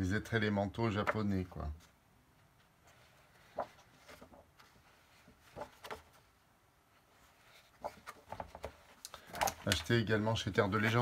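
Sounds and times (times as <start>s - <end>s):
paper rustling: 2.6s - 6.4s, 7.0s - 11.0s.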